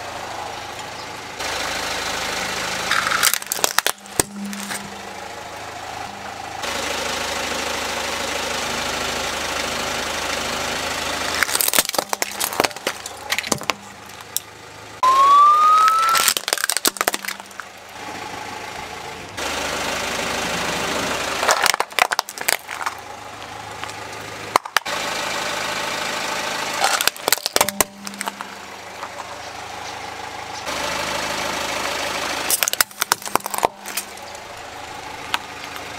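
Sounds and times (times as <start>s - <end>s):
car idling: 0.0s - 35.9s
plastic cracking and crunching: 2.9s - 4.8s, 11.4s - 14.4s, 15.8s - 17.7s, 21.4s - 23.0s, 26.8s - 28.5s, 32.5s - 34.2s
short rising squeal: 15.0s - 16.3s.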